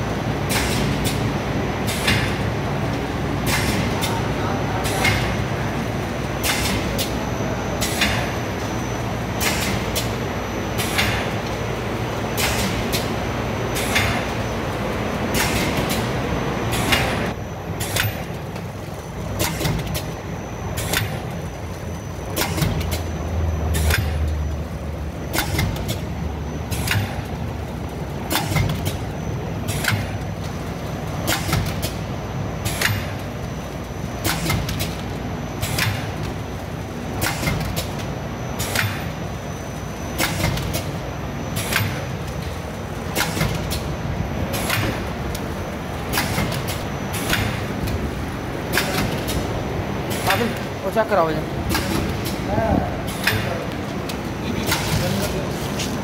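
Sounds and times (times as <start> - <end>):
sharp mechanical clacks: 6.4 - 7.2, 10.8 - 11.6, 12.3 - 14.4, 15.3 - 16.1, 16.7 - 18.6, 19.4 - 20.2, 22.3 - 23.1, 25.3 - 26.1, 26.7 - 27.4, 28.2 - 30.3, 31.2 - 33.4, 34.2 - 36.4, 37.1 - 39.2, 40.1 - 43.9, 44.5 - 49.5, 51.6 - 56.0.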